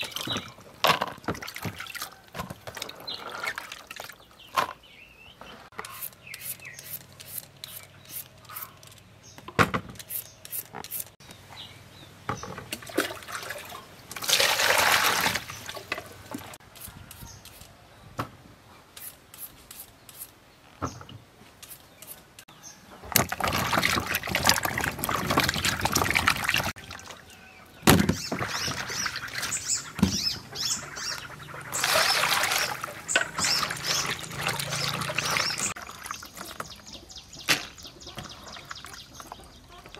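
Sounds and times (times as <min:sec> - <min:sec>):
vegetable peeler scraping: 0:05.8 - 0:08.9, 0:10.0 - 0:11.2
hands splashing in water: 0:31.7 - 0:36.2.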